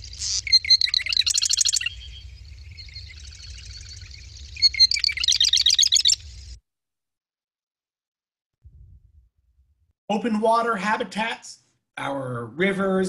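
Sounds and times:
wren song with rattling trill: 0.0 - 6.6.

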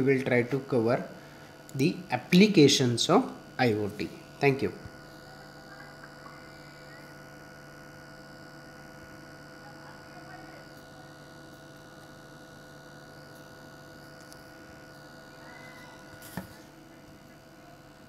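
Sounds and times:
faint electrical hum: 0.0 - 18.0.

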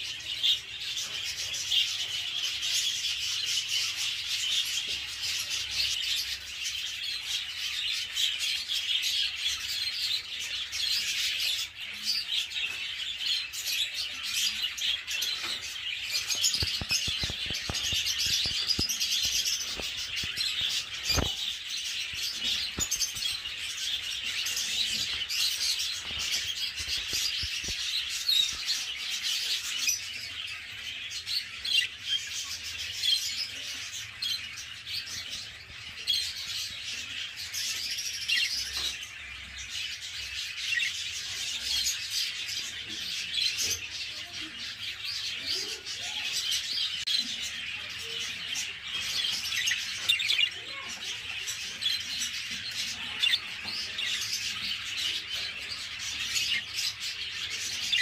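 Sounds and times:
budgerigars chirping: 13.4 - 34.2, 45.6 - 58.0.

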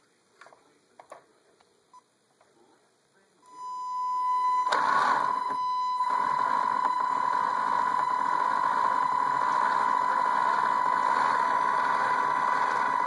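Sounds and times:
electric motor high whine: 4.2 - 13.0
gear noise whirring: 4.6 - 13.0.

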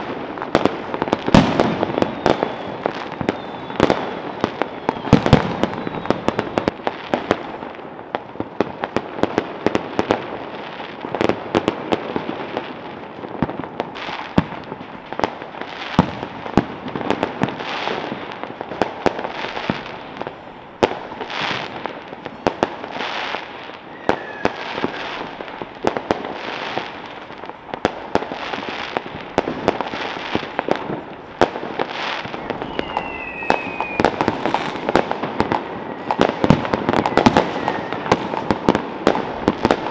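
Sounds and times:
falling firework whistles: 0.0 - 7.3, 21.2 - 25.4, 28.4 - 39.9
fireworks bangs and crackles: 0.0 - 39.9.

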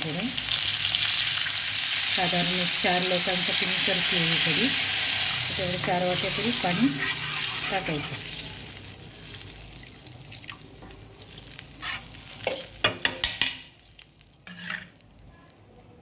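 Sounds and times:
oil sizzling: 0.0 - 15.3
spoon stirring in a pan: 5.8 - 9.5, 10.8 - 15.1.

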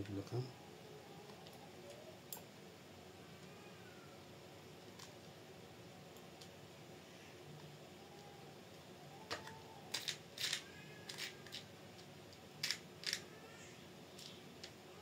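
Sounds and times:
small parts clicking and tapping: 1.2 - 2.5, 7.6 - 13.4, 14.1 - 14.8.

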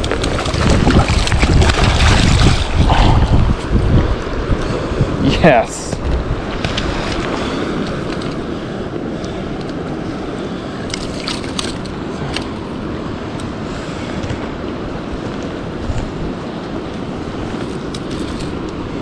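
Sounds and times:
creek water rushing: 0.0 - 5.6.

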